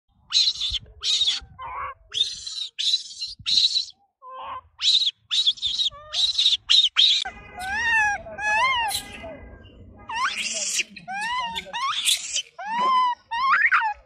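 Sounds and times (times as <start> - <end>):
macaques screeching: 0.3 - 9.4, 10.1 - 14.0
lower squeaks: 5.6 - 14.0.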